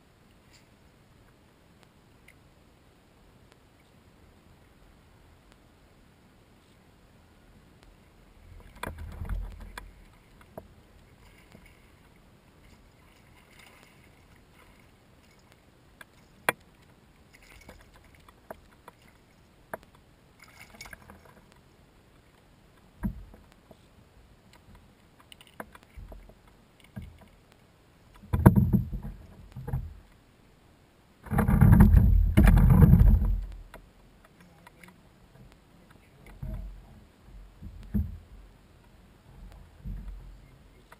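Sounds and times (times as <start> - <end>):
paddle strokes: 7.9 - 27.5
gear knocking against kayak hull: 28.2 - 30.0, 31.3 - 33.8.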